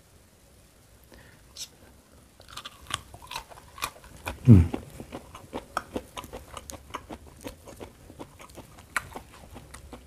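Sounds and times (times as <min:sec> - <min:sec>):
chewing crunchy food: 0:02.4 - 0:10.0
low vocal sound: 0:04.4 - 0:04.8.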